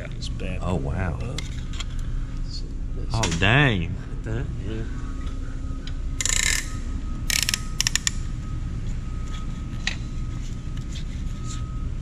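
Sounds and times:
steady low hum: 0:00.0 - 0:12.0
ratchet tool clicking: 0:06.2 - 0:08.2.

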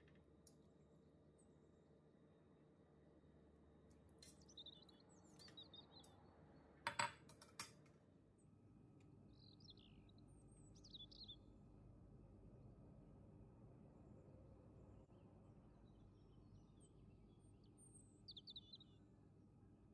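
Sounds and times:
faint bird chirps: 0:04.2 - 0:06.6, 0:09.2 - 0:11.6, 0:15.1 - 0:19.1.

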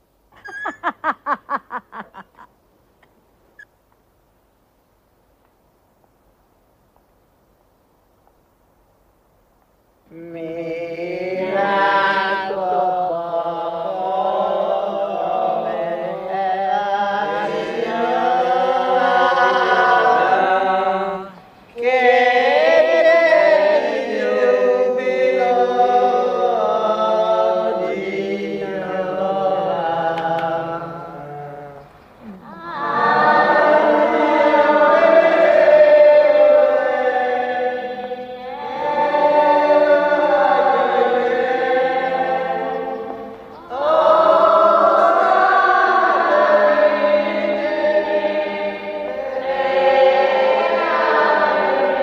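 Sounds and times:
choir singing a chant: 0:10.1 - 0:52.0.

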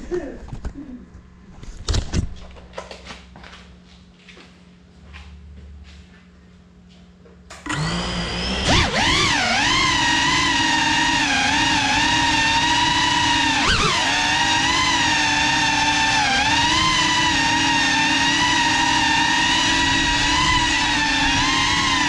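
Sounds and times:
drone propellers whining: 0:13.6 - 0:15.0.

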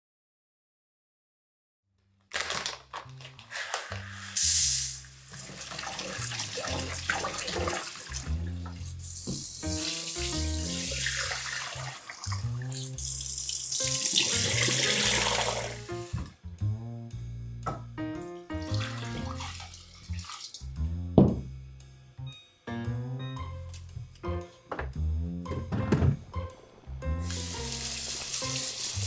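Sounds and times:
background music: 0:02.3 - 0:29.0
grains swirled by hand: 0:03.5 - 0:04.9
tap water splashing through colander: 0:05.3 - 0:16.3, 0:18.6 - 0:20.6.

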